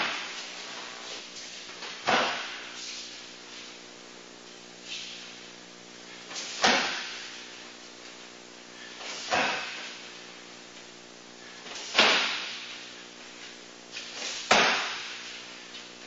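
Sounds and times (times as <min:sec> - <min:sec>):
kicks slamming into kick shield: 0:14.5 - 0:15.2.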